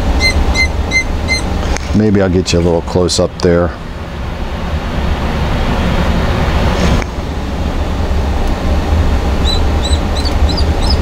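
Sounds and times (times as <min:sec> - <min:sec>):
steady low rumble: 0:00.0 - 0:11.0
short high chirps: 0:00.1 - 0:01.5.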